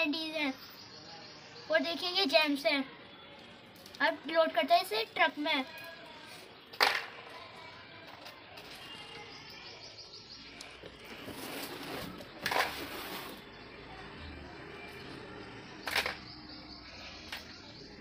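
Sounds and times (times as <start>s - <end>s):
small birds chirping: 0.0s - 18.0s
sweets clattering into plastic toy: 11.2s - 13.4s.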